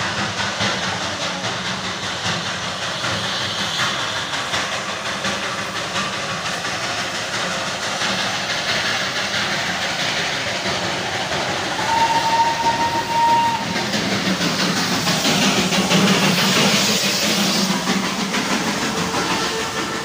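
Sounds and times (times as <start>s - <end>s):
steam locomotive passing: 0.0s - 20.0s
steam whistle: 11.8s - 13.8s.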